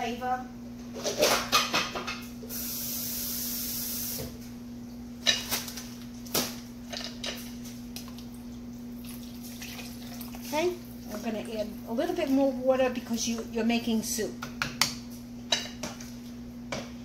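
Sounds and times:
low steady hum: 0.0 - 17.0
kitchen knocks and clinks: 1.0 - 2.2.

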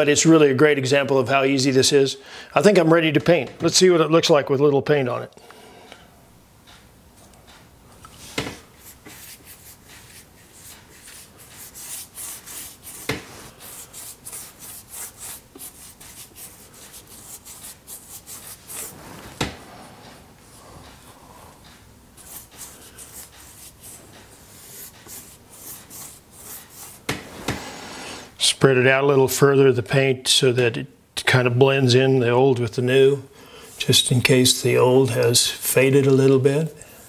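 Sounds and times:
paintbrush scratchy strokes: 8.2 - 21.6, 22.2 - 28.4.

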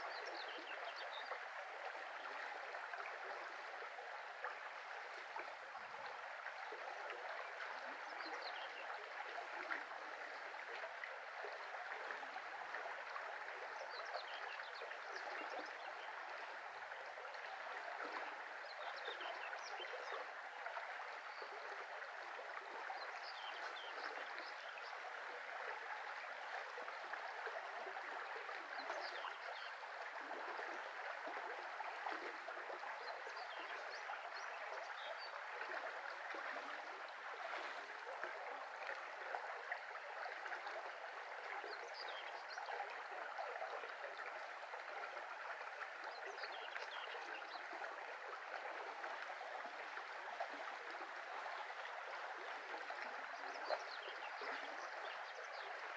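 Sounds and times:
brook flowing: 0.0 - 55.9.

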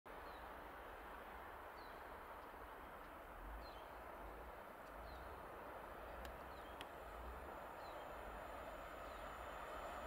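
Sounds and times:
faint steady hiss: 0.1 - 10.0
faint ticks: 2.3 - 3.2, 6.1 - 7.0.

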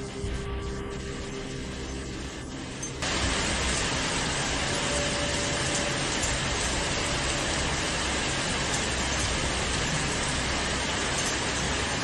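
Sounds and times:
heavy rain: 0.0 - 12.0
rushing floodwater: 3.0 - 12.0.

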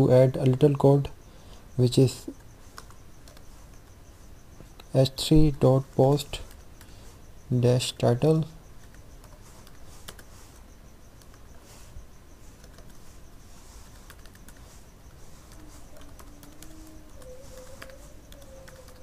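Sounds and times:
computer keyboard typing: 2.3 - 3.9, 8.8 - 10.3, 11.2 - 11.6, 12.5 - 19.0.

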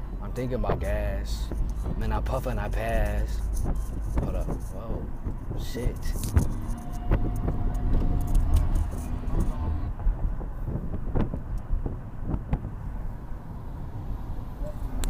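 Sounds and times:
car interior rumble: 0.0 - 15.0.

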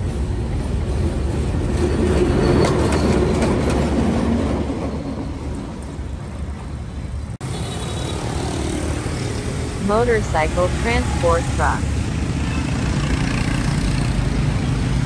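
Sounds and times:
street traffic: 5.5 - 15.0.

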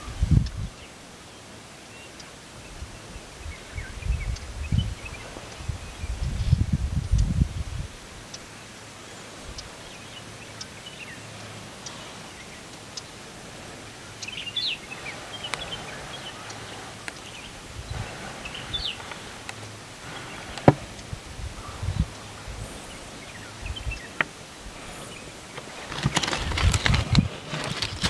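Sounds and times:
small birds chirping: 0.0 - 28.0
steady background hiss: 0.0 - 28.0
faint clicks: 9.5 - 21.1.

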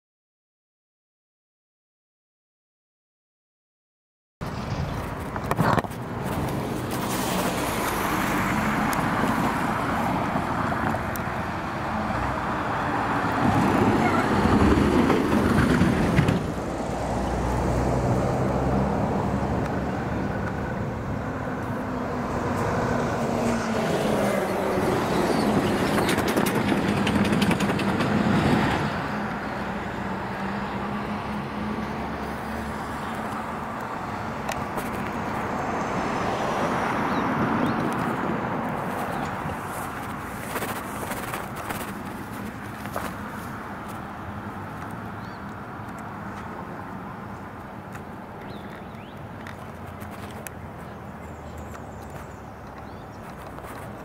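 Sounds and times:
cars passing: 4.4 - 54.0
road traffic: 4.4 - 54.0.

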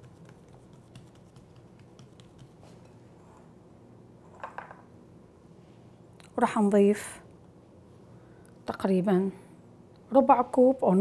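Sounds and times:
fingertips tapping dough: 0.0 - 2.9.

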